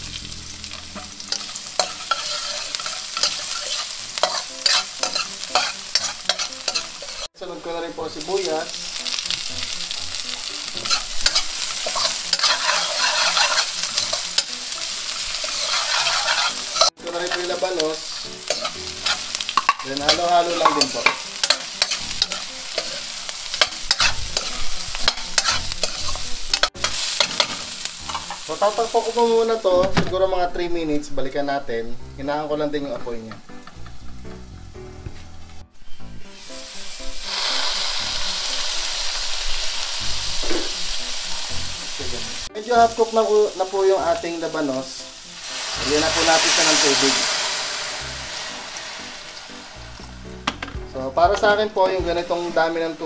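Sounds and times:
garlic sizzling in a wok: 0.0s - 29.7s, 32.8s - 34.8s, 35.5s - 53.0s
metal spoon scraping a pan: 0.7s - 7.3s, 8.8s - 28.5s.

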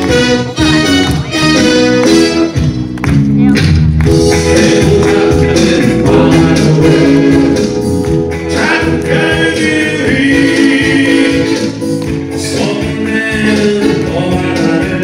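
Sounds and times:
amplified instrumental accompaniment: 0.0s - 15.0s
man singing into a microphone: 4.3s - 7.8s, 8.4s - 15.0s.

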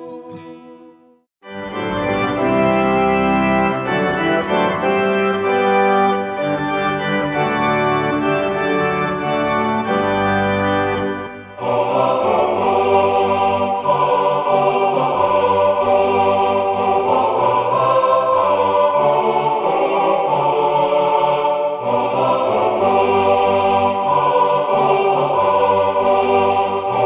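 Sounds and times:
choir singing: 0.0s - 1.1s, 11.5s - 27.0s
organ playing sustained chords: 1.4s - 27.0s.

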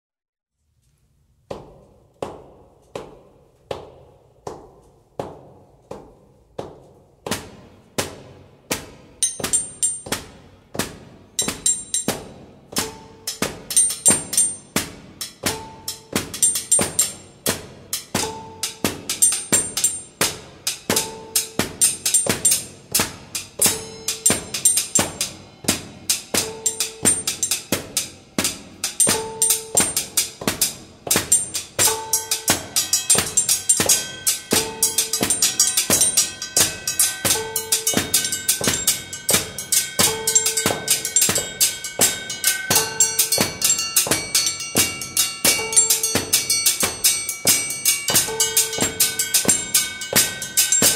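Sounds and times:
rhythmic percussion music: 5.4s - 50.9s
held high tones: 23.6s - 27.8s, 31.1s - 50.9s.

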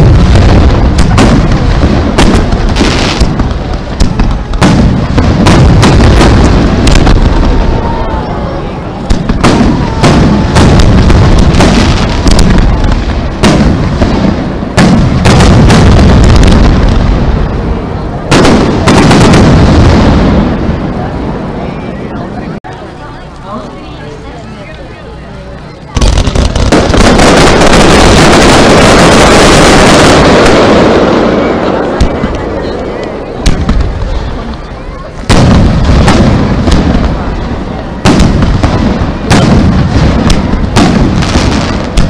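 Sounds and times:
deep rolling booms: 0.0s - 21.9s, 25.9s - 34.6s, 35.2s - 42.0s
firework shells bursting: 26.0s - 30.9s.

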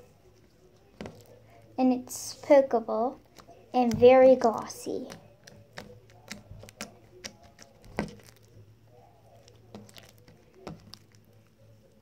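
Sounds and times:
slime squishing and clicking: 3.2s - 8.6s, 9.3s - 11.3s.

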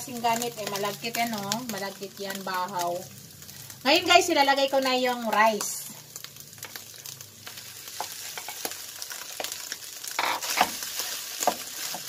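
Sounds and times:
food sizzling in a pan: 0.0s - 12.0s
spatula tapping pan: 10.2s - 12.0s.

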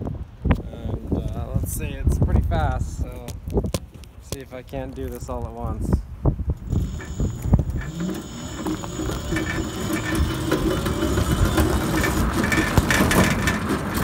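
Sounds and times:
frame rattling on rough pavement: 6.6s - 14.0s
electric motor whining: 6.7s - 13.1s.

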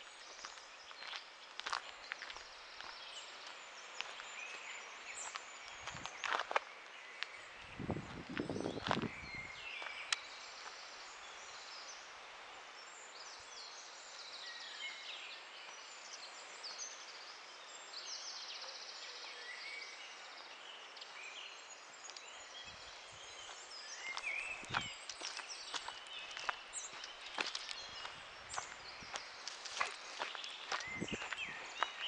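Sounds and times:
footsteps on a path: 0.0s - 10.8s, 22.0s - 32.0s
small birds chirping and trilling: 0.0s - 32.0s
soft outdoor hiss: 0.0s - 32.0s.

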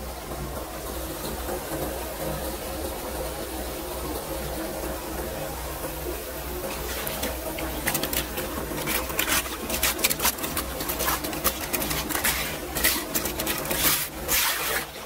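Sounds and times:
water gurgling into drain: 0.0s - 15.0s
water splashing and sloshing: 5.2s - 15.0s
debris scraping and clicking: 7.0s - 15.0s.

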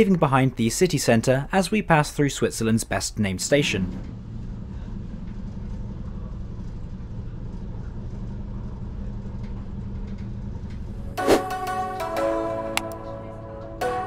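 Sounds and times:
train rumble and hum: 2.5s - 11.3s
music with bell-like tones: 11.2s - 14.0s.

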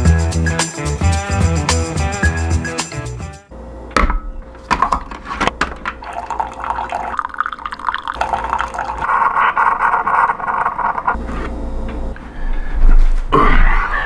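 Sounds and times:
coffee streaming into mug: 6.0s - 9.1s.

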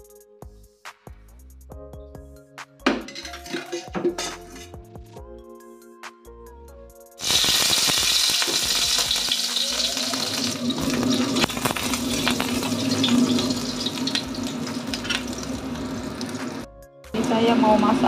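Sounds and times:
food sizzling in hot oil: 7.2s - 16.7s.

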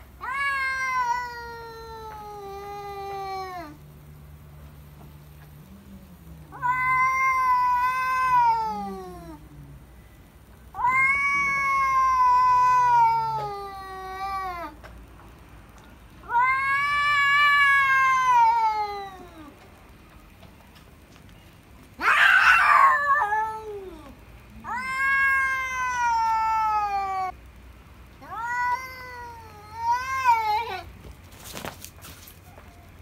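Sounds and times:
cat yowling: 0.2s - 3.8s, 6.5s - 9.4s, 10.7s - 14.8s, 16.2s - 19.5s, 22.0s - 27.4s, 28.2s - 30.9s.

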